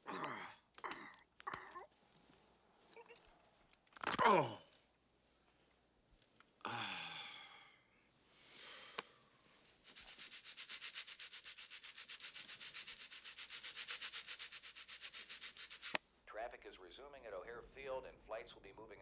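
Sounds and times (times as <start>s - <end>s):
breathy inhale: 6.7s - 9.6s
rapid rubbing strokes: 9.6s - 16.0s.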